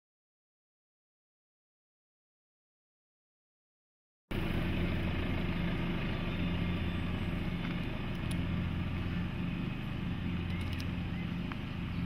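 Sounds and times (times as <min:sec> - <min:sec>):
diesel engine low hum: 0:04.3 - 0:12.0.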